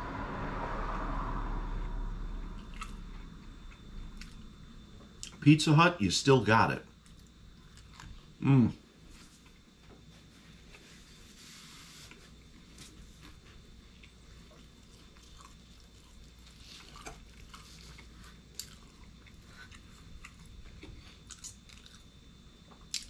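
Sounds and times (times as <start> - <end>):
chewing crispy pizza: 2.6 - 4.6, 7.0 - 9.7, 12.1 - 23.0.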